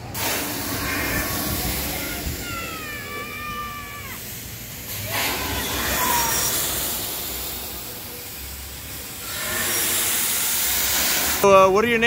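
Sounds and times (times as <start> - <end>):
steady background noise: 0.0 - 12.0
person screaming: 0.8 - 4.2, 5.0 - 6.6.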